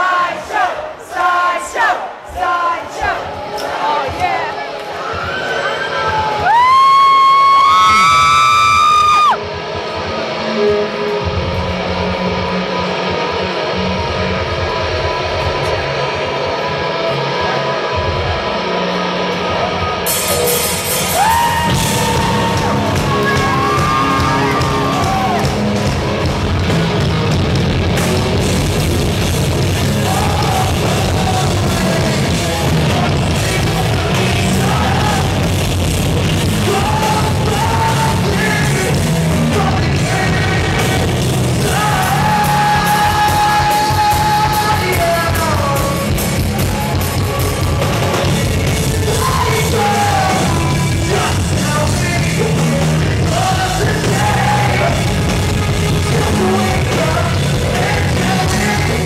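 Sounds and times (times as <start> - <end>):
heavy rock band playing live: 6.4 - 59.0
person singing: 21.1 - 26.2, 29.7 - 35.8, 36.4 - 59.0.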